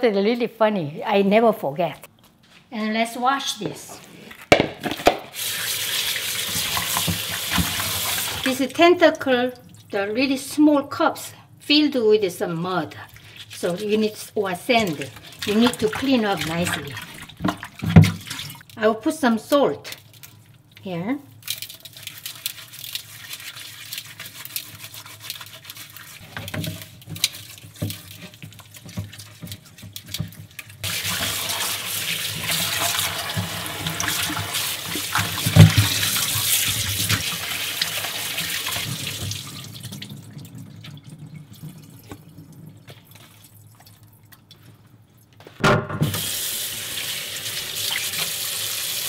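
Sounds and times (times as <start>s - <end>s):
tap water running into sink: 5.4s - 8.6s, 24.6s - 43.2s, 46.0s - 49.0s
wet rubbing and handling: 12.9s - 18.8s, 19.9s - 45.5s.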